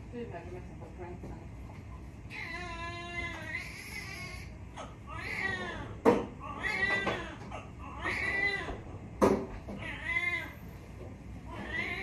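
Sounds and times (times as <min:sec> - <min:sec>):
baby crying: 0:02.3 - 0:08.8.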